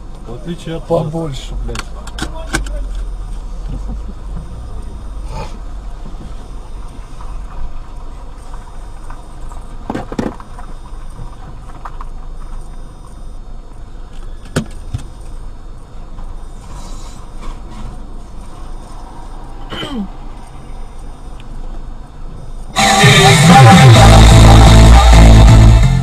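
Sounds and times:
car low rumble: 0:00.0 - 0:26.0.

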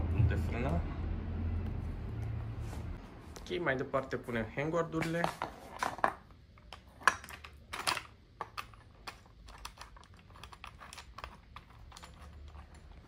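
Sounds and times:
plastic parts clicking and tapping: 0:05.0 - 0:13.0.

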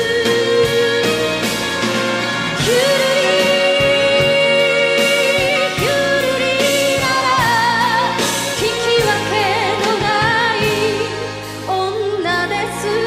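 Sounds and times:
woman singing with vibrato: 0:00.0 - 0:01.7, 0:02.6 - 0:13.0
instrumental backing: 0:00.0 - 0:13.0.

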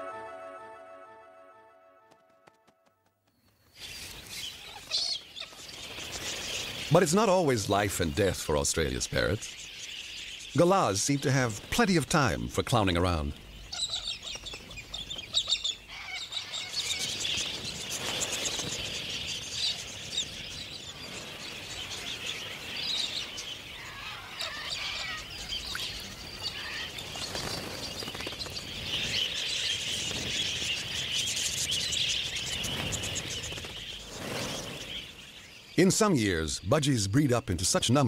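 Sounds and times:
budgerigars chattering: 0:12.7 - 0:20.7.

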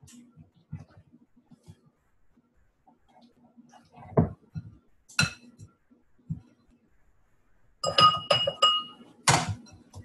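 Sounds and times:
utensil clinking against mixing bowl: 0:07.8 - 0:09.5.

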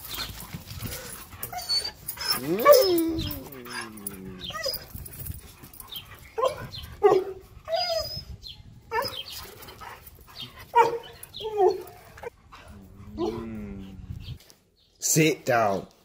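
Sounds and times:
dogs yipping and barking: 0:00.0 - 0:12.6.

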